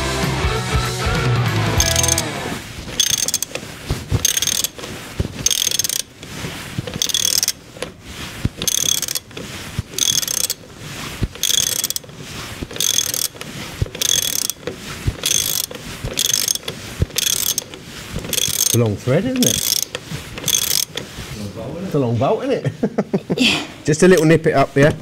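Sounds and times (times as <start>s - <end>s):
ratchet wrench clicking: 1.8s - 2.3s, 2.9s - 3.6s, 4.2s - 7.6s, 8.6s - 10.6s, 11.4s - 18.8s, 19.4s - 21.1s.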